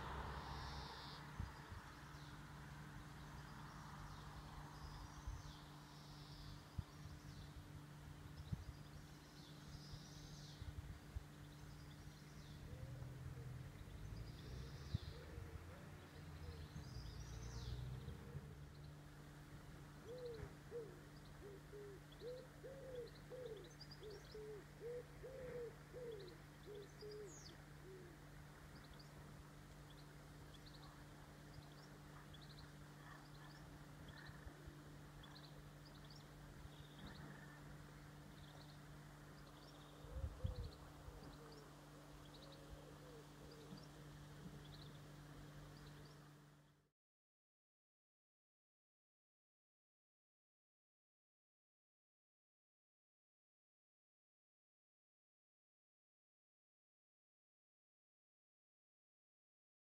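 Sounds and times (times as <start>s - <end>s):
small birds chirping: 0.0s - 46.9s
steady low hum: 0.0s - 46.9s
pigeon cooing: 20.0s - 28.2s, 42.4s - 43.8s.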